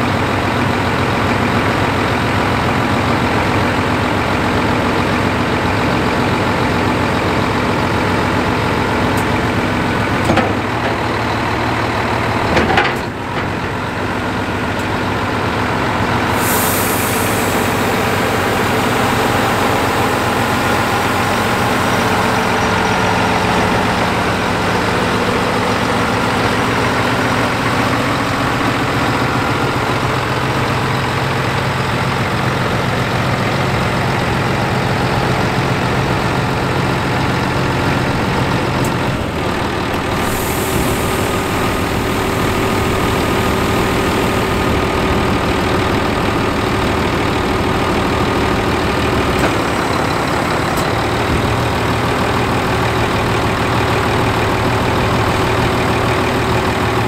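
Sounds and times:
diesel truck engine idling: 0.0 - 57.0.

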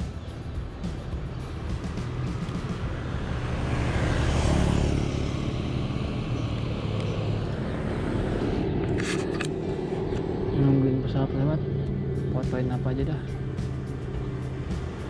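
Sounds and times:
steady traffic noise: 0.0 - 15.0
vehicle passing by: 0.0 - 15.0.

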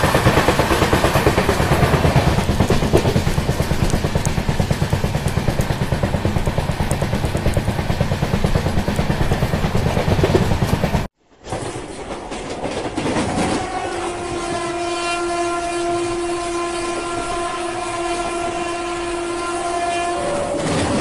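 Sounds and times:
train running noise: 0.0 - 21.0
train horn: 13.2 - 21.0.

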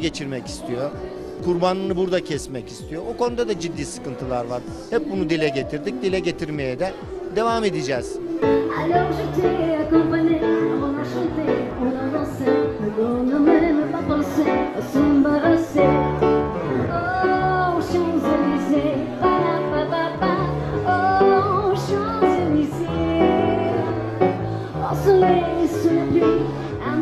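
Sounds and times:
keyboard playing chords: 0.0 - 27.0
woman singing with vibrato: 7.0 - 27.0.

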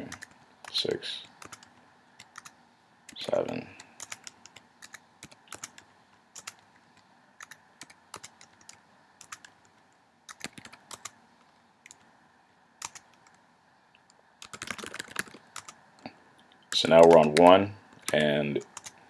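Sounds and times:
computer keyboard key clicks: 4.0 - 5.8, 6.4 - 6.6, 12.8 - 13.3.

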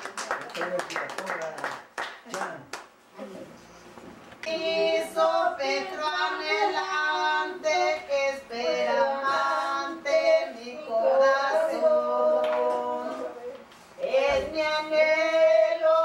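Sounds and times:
women and girls singing: 4.4 - 16.0.

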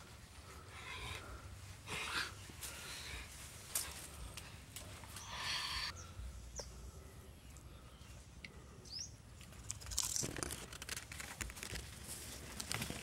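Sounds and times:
leafy branches rustling and crackling: 0.0 - 5.3, 9.4 - 13.0
bird chirps: 8.8 - 9.2.

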